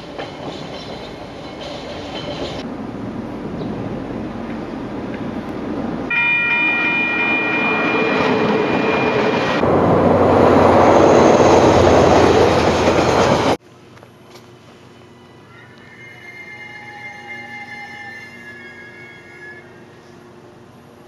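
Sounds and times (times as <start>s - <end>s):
train rumbling on rails: 0.0s - 13.6s.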